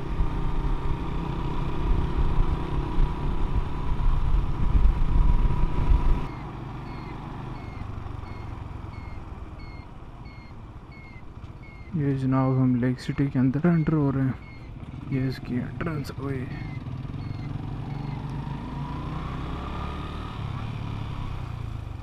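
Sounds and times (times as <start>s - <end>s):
motorcycle engine: 0.0s - 22.0s
wind rumble on microphone: 1.7s - 6.3s.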